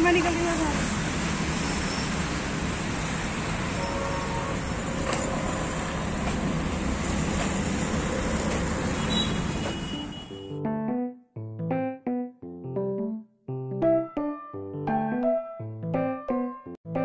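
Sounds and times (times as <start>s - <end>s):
road traffic passing: 0.0s - 10.5s.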